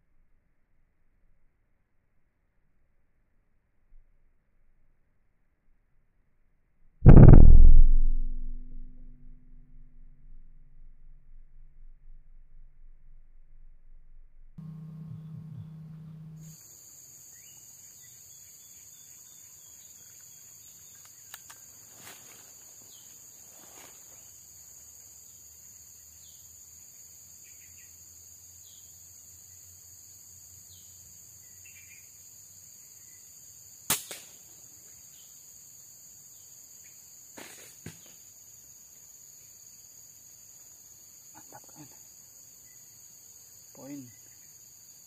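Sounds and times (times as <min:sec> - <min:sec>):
air rifle shot: 0:07.1 - 0:09.3
insect drone: 0:14.6 - 0:45.0
faint bird chirps: 0:43.8 - 0:44.6.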